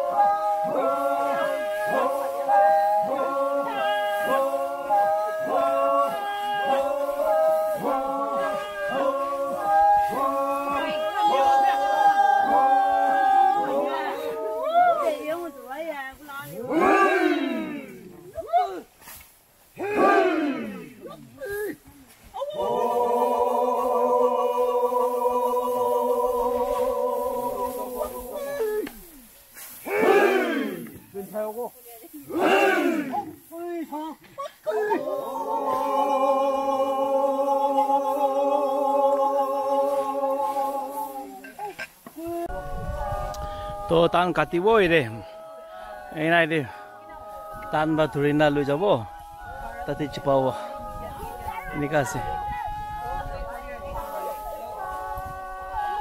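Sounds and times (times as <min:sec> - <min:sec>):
men chanting together: 0:00.0 - 0:18.6, 0:19.8 - 0:21.5, 0:22.5 - 0:31.4, 0:32.2 - 0:33.9, 0:34.6 - 0:56.0
person singing a long note: 0:35.3 - 0:56.0.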